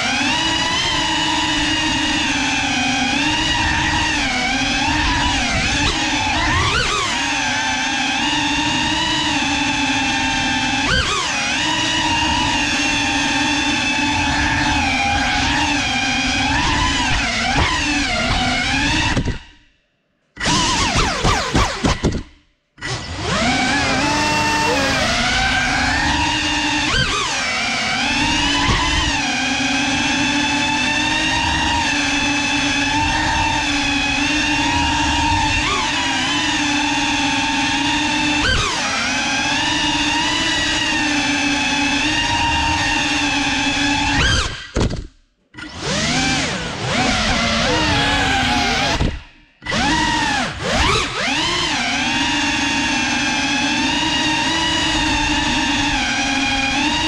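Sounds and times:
quadcopter motors whining: 0:00.0 - 0:19.4, 0:22.8 - 0:44.7, 0:45.6 - 0:57.0
drone propellers whining: 0:23.0 - 0:27.7, 0:46.0 - 0:50.6.

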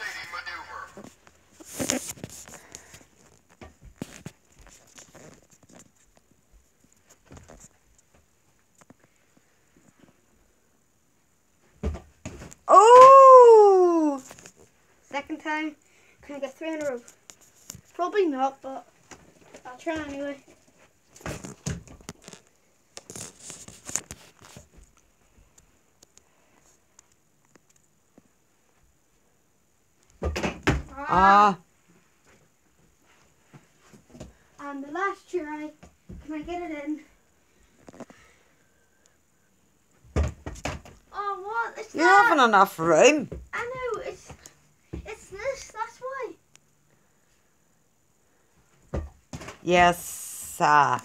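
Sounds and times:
rustling and scuffling: 0:00.4 - 0:10.3, 0:16.2 - 0:27.6.

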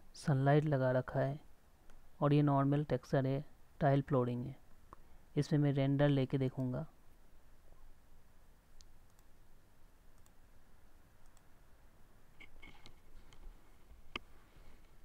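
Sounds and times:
low hiss: 0:00.0 - 0:15.0
computer mouse clicks: 0:08.8 - 0:09.3, 0:10.1 - 0:10.4, 0:11.2 - 0:11.5, 0:12.4 - 0:13.5.

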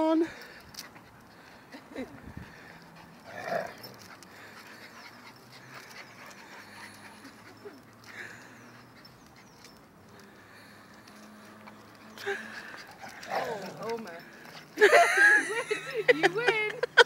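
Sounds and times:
dogs play-fighting: 0:00.4 - 0:16.6
dog vocal sound: 0:12.0 - 0:15.0.

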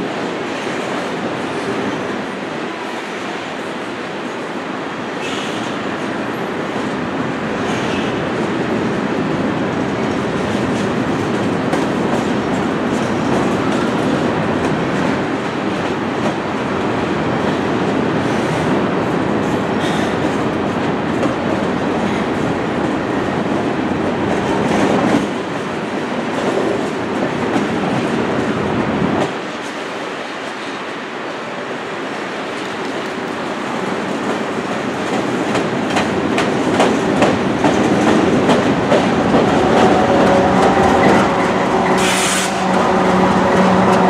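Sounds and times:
steel wheels rumbling on rail: 0:00.0 - 0:44.0
wheels clacking over rail joints: 0:34.1 - 0:44.0.

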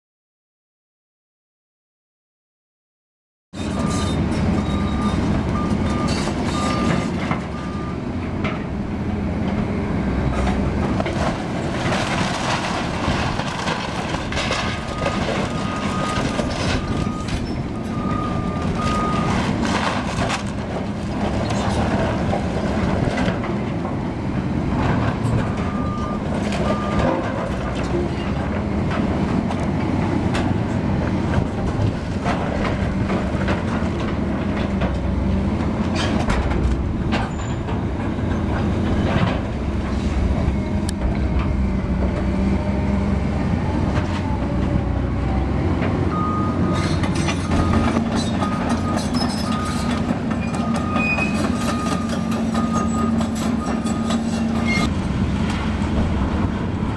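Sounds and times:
diesel engine running: 0:03.7 - 0:56.9
timber crashing and crunching: 0:11.2 - 0:17.0.

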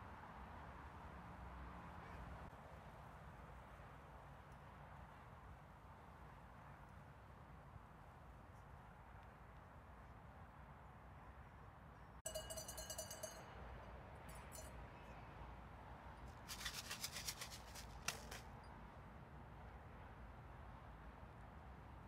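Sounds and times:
ringing tone: 0:12.3 - 0:13.5
rapid rattling bursts: 0:16.4 - 0:18.4.

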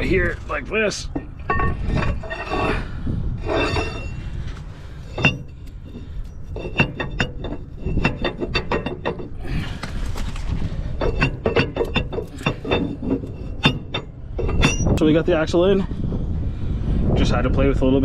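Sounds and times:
metal scraping and sliding: 0:00.0 - 0:15.9
metal-on-metal knocks and clinks: 0:01.1 - 0:02.7, 0:05.1 - 0:09.4, 0:11.0 - 0:15.0.

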